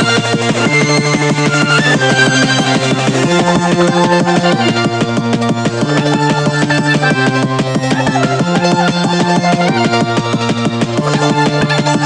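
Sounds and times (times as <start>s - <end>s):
electronic music with pulsing beat: 0.0s - 12.0s.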